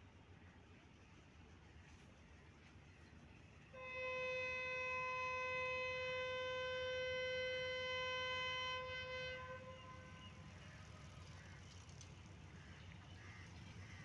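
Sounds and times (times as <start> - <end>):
locomotive horn blast: 3.7 - 10.8.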